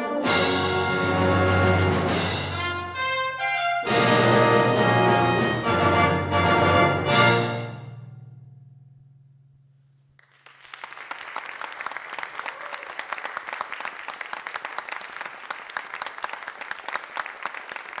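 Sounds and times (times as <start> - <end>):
brass and percussion chord: 0.0 - 8.5
audience applauding: 10.2 - 18.0.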